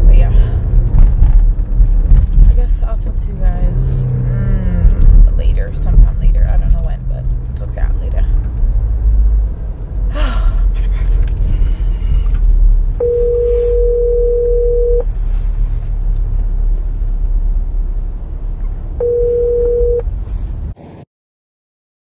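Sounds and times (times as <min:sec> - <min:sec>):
low rumble: 0:00.0 - 0:20.8
telephone ringback tone: 0:13.0 - 0:15.0, 0:19.0 - 0:20.0.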